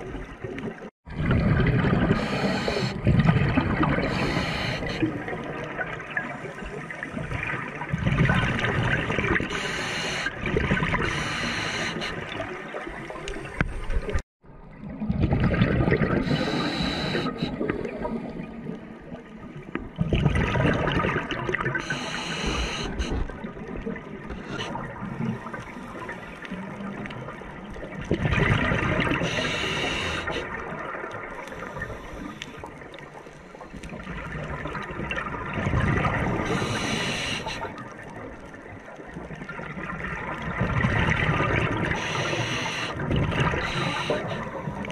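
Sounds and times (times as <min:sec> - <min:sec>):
exhaled bubbles gurgling: 0:00.0 - 0:44.9
regulator breath hiss: 0:02.2 - 0:03.0, 0:04.1 - 0:05.1, 0:09.5 - 0:10.3, 0:11.0 - 0:12.2, 0:16.2 - 0:17.6, 0:21.8 - 0:23.2, 0:29.2 - 0:30.4, 0:36.5 - 0:37.7, 0:42.0 - 0:43.0, 0:43.6 - 0:44.6.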